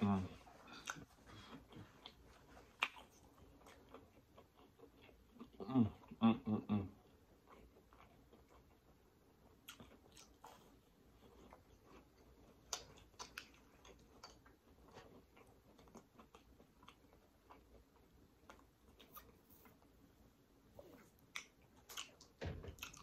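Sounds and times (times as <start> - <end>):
person chewing: 0.4 - 6.2, 6.9 - 20.1, 20.8 - 23.0.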